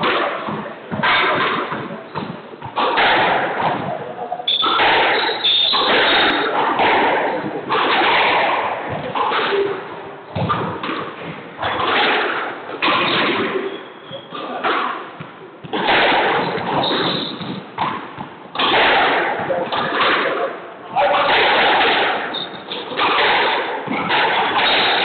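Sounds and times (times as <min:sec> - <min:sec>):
ball hitting court walls: 0:00.0 - 0:25.0
racket striking ball: 0:00.0 - 0:25.0
shoes squeaking on floor: 0:04.0 - 0:06.6, 0:13.0 - 0:15.5, 0:16.4 - 0:17.9, 0:22.2 - 0:23.0.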